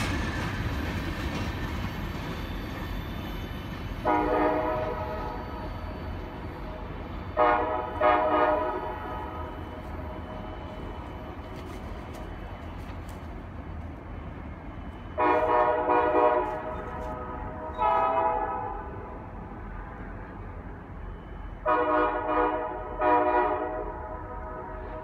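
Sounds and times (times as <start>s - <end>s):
train rumbling: 0.0s - 25.0s
locomotive air horn blasts: 4.0s - 5.7s, 7.4s - 10.6s, 15.1s - 19.1s, 21.6s - 25.0s.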